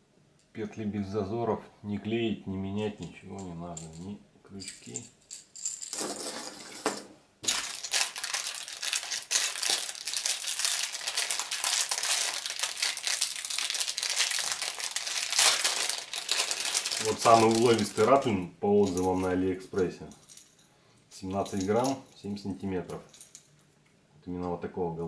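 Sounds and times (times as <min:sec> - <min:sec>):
plastic bag crinkling: 0:07.4 - 0:19.4.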